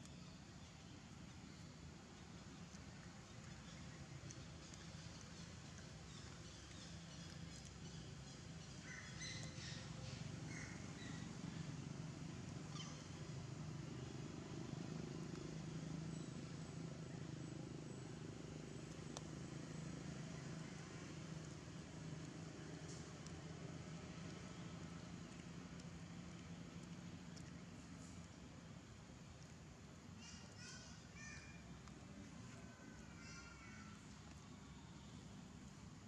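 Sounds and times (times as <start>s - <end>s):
faint bird chirps: 12.7s - 13.2s, 32.4s - 35.3s.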